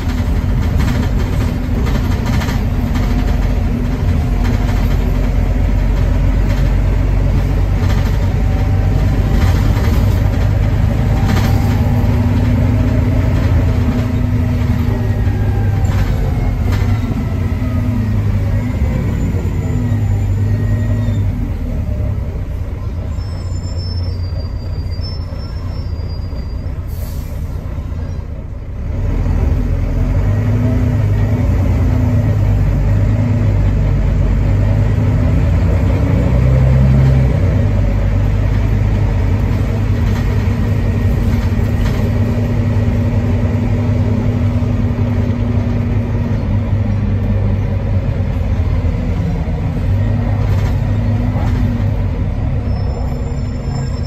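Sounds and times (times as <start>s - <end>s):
bus diesel engine drone: 0.0s - 54.0s.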